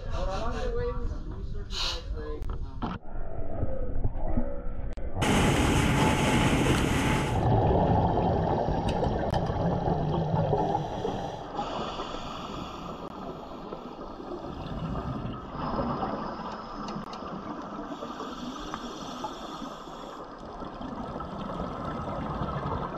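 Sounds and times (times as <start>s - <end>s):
bubbling underwater: 7.4s - 11.4s, 14.4s - 17.5s, 20.4s - 22.9s
underwater hiss: 10.7s - 13.1s, 17.9s - 20.3s.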